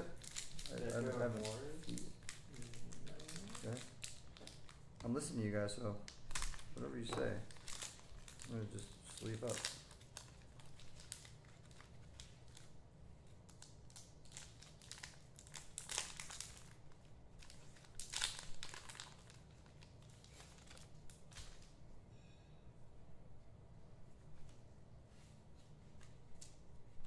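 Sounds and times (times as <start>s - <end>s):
card pack wrappers crinkling and tearing: 0.0s - 5.3s, 6.1s - 12.8s, 13.4s - 21.7s.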